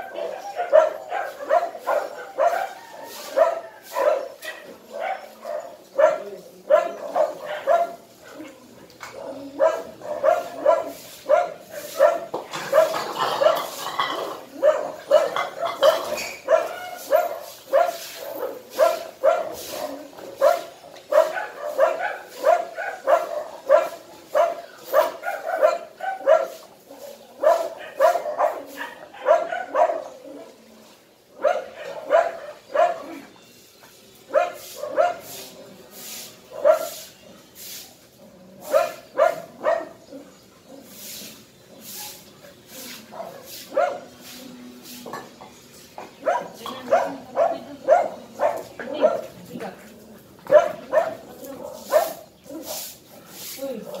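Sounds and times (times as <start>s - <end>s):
dog barking: 0.0s - 8.5s, 9.1s - 30.5s, 31.4s - 33.3s, 34.3s - 35.8s, 36.5s - 37.0s, 38.6s - 41.0s, 43.1s - 44.2s, 46.2s - 49.4s, 50.5s - 52.9s.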